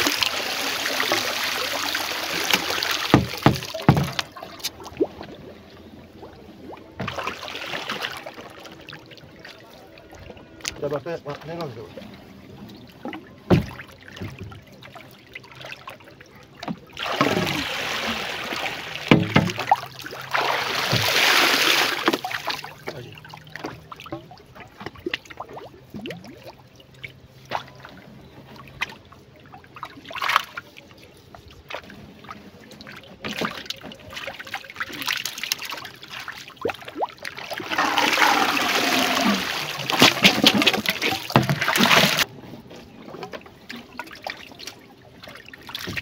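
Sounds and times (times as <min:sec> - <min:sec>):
water splashing and trickling: 0:00.0 - 0:46.0
knocks of line and boat: 0:02.5 - 0:05.3, 0:12.9 - 0:14.9, 0:18.8 - 0:21.3, 0:37.5 - 0:43.9.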